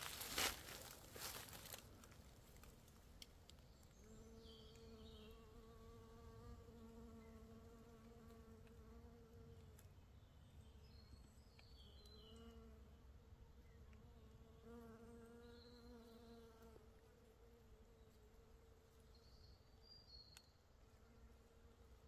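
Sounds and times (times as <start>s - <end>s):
flying insect buzzing: 4.0s - 9.6s.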